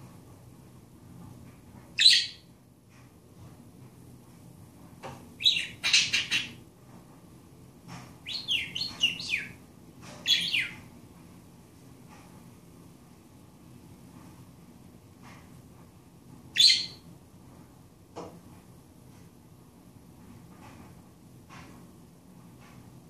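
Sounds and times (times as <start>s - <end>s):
budgerigar chirping: 2.0s - 2.4s, 5.4s - 6.6s, 8.3s - 9.6s, 10.2s - 10.8s, 16.6s - 17.0s.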